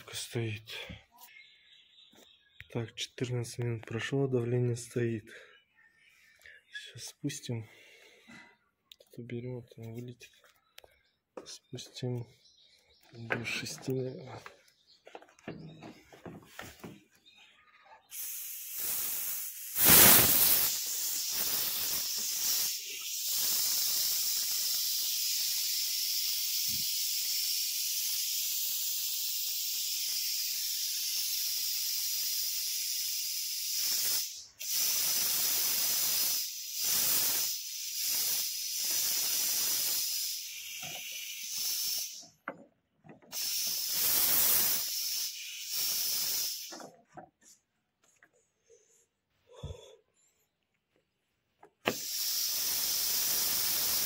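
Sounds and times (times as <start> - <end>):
sharp loud gas burst: 18.1 - 42.3, 43.3 - 46.8, 51.8 - 54.0
gas hissing out: 18.1 - 42.4, 43.3 - 47.0, 51.8 - 54.0.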